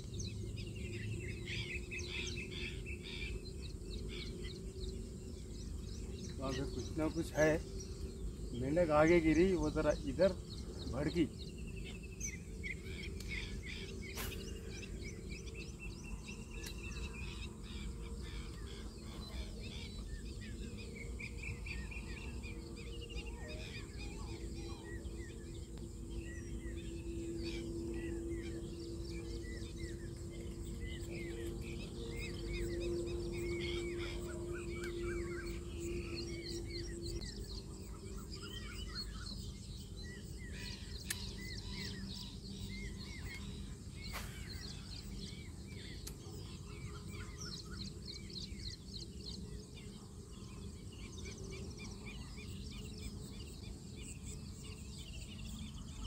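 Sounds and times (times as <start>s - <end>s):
low steady hum: 0.0s - 56.0s
outdoor background noise: 0.0s - 56.0s
small birds chirping: 0.0s - 56.0s.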